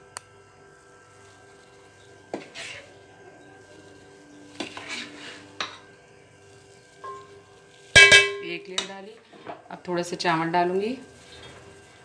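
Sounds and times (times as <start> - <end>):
ladle scraping in metal pot: 2.3 - 2.9, 4.6 - 5.9
loud metallic clank: 8.0 - 8.5.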